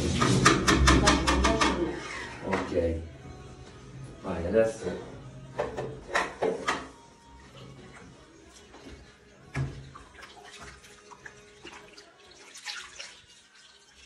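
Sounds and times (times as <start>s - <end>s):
curd and whey sloshing: 7.6s - 14.0s.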